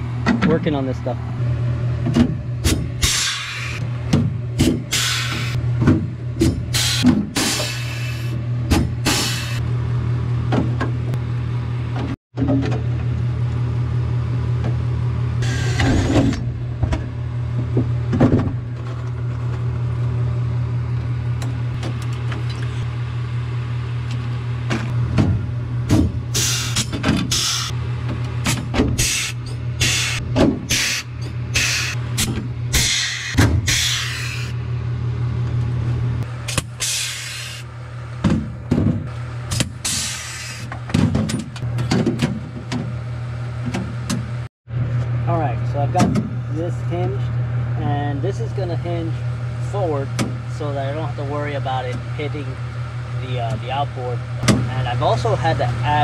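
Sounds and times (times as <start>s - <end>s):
steady low hum: 0.0s - 56.0s
air hiss bursts: 3.0s - 3.8s, 4.9s - 5.6s, 6.7s - 8.3s, 9.1s - 9.6s, 26.3s - 27.7s, 29.0s - 32.0s, 32.8s - 34.5s, 36.8s - 37.6s.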